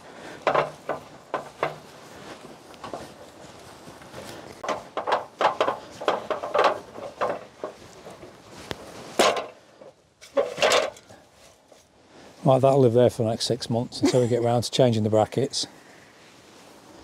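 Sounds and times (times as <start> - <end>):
hard objects knocking and clattering: 0.4 - 1.9, 4.6 - 8.3, 9.2 - 11.0.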